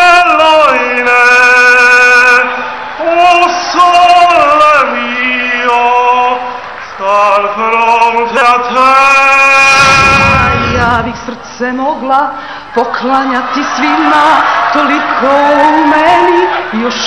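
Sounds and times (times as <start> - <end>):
man singing unaccompanied: 0.0 - 11.8.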